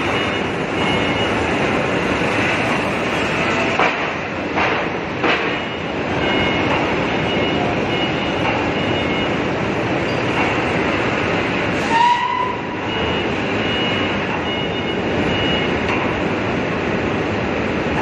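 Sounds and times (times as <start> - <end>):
industrial furnace noise: 0.0 - 18.0.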